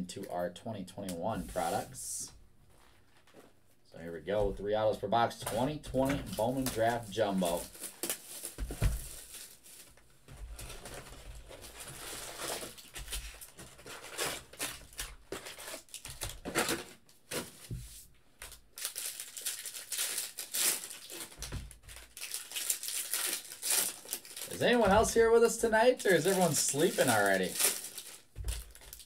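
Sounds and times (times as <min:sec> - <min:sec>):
plastic wrappers crinkling: 0:06.2 - 0:17.0, 0:18.4 - 0:29.0.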